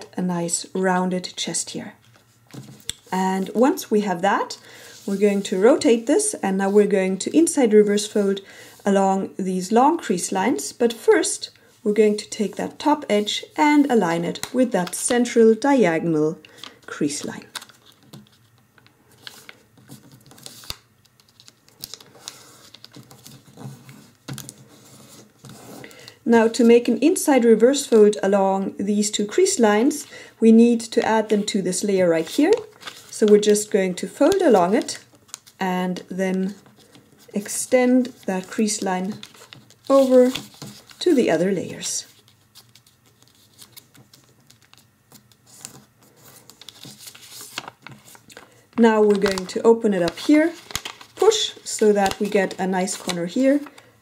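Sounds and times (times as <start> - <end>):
paper being folded: 16.5 - 26.7, 30.9 - 35.6, 36.4 - 41.3, 42.0 - 53.9.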